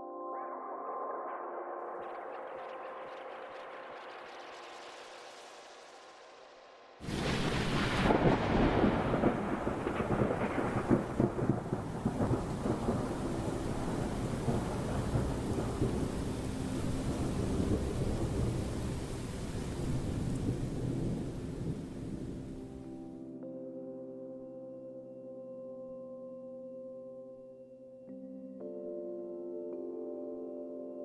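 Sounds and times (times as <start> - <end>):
rain hissing: 2.2 - 22.9
thunder rumbling: 7.0 - 22.8.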